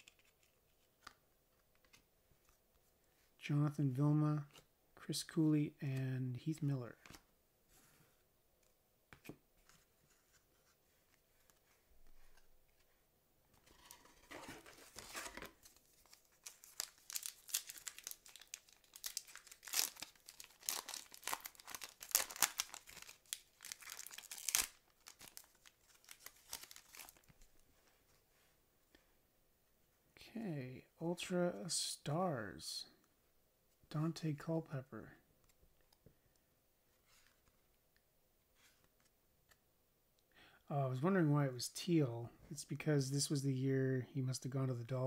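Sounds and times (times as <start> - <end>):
foil wrapper tearing and crinkling: 16.1 - 27.3.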